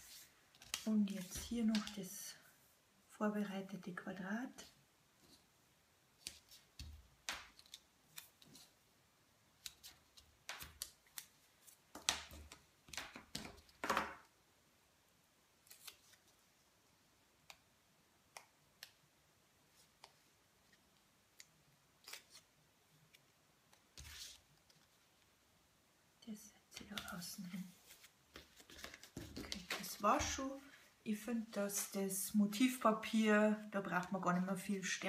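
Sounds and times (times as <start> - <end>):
paper snips and rustles: 22.0 - 22.5.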